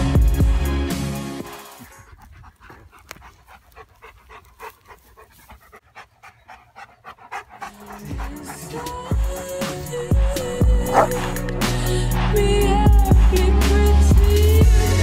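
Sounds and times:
music: 0.0s - 2.0s, 7.6s - 15.0s
dog panting: 1.7s - 13.2s.

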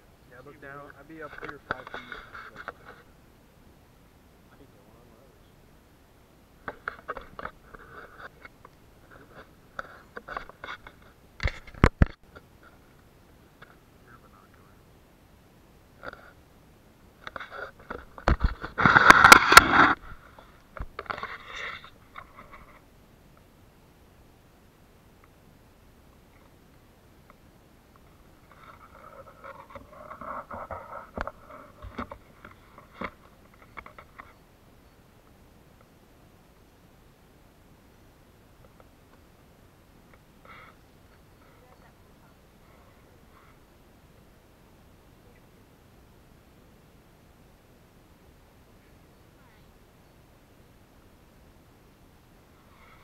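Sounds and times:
crunching clicks and scrapes: 0.8s - 3.1s, 6.6s - 13.0s, 16.0s - 16.4s, 17.2s - 22.9s, 28.0s - 34.4s.

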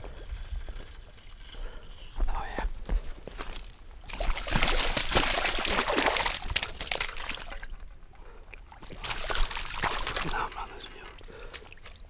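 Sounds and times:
water splashing from thrashing fish: 4.1s - 7.8s, 8.7s - 10.6s.

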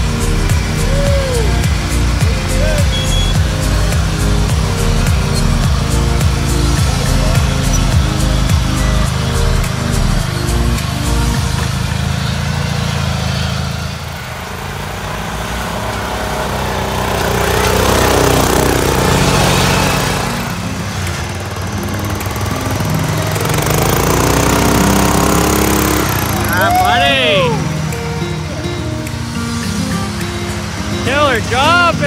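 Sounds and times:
small engines revving: 0.0s - 32.0s.

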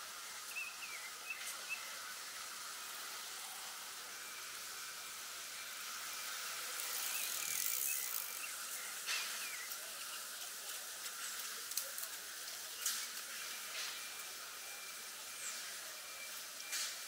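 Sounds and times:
steady high-pitched hiss: 0.0s - 17.0s.

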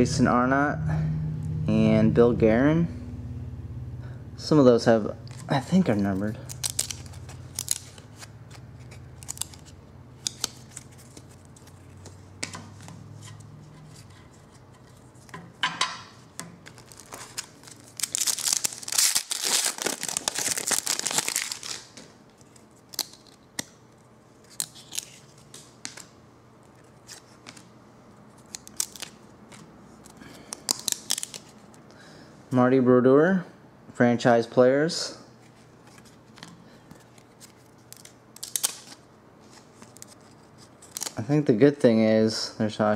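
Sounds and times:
foil wrapper tearing and crinkling: 5.3s - 11.9s, 16.6s - 23.4s, 24.5s - 25.2s, 28.4s - 29.6s, 30.4s - 31.7s, 37.3s - 39.0s, 39.8s - 41.2s
trading cards clicking and snapping: 6.1s - 13.0s, 22.9s - 23.8s, 24.5s - 26.1s, 28.4s - 31.8s, 36.4s - 39.0s.

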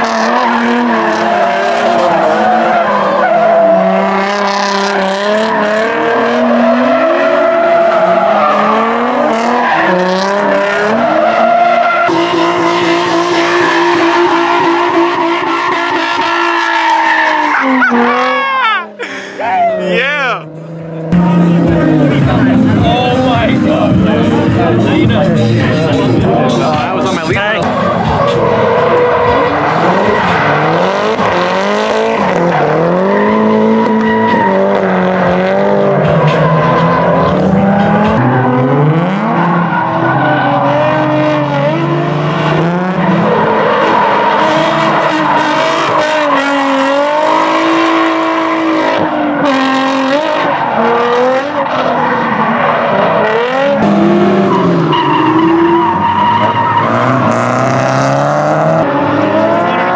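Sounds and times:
car engines revving: 0.0s - 59.9s
tyres squealing: 15.6s - 20.5s, 54.5s - 57.4s.

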